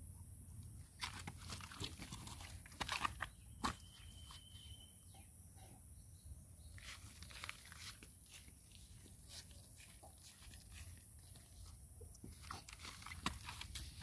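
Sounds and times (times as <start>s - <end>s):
children moving on grass: 6.8s - 14.0s.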